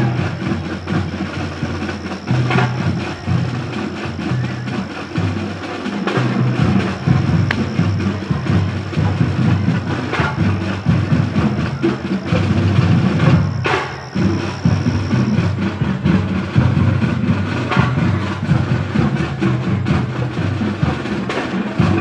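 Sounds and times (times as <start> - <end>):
drum-heavy music: 0.0 - 22.0.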